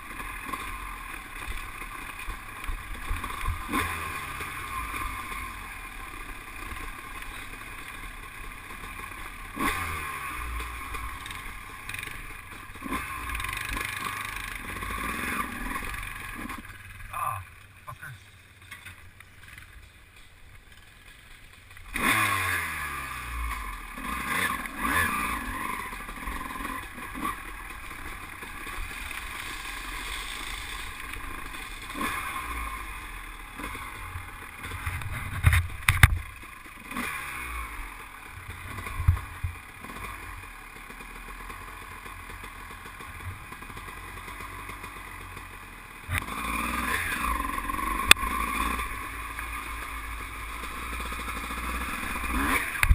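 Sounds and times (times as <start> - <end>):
dirt bike engine revving: 0.0 - 52.9
knocks and clatter over rocks: 34.6 - 36.4.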